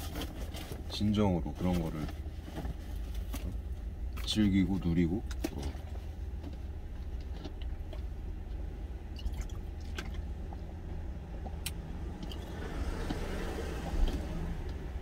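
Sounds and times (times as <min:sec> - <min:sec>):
steady low rumble: 0:00.0 - 0:15.0
man gulping water: 0:09.1 - 0:10.3.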